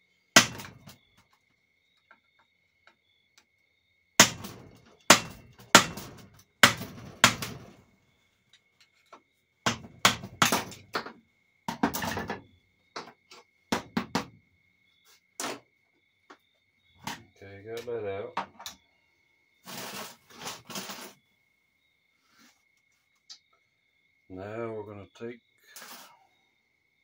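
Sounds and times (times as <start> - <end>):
hammer striking metal: 0.4 - 0.9, 4.2 - 7.7.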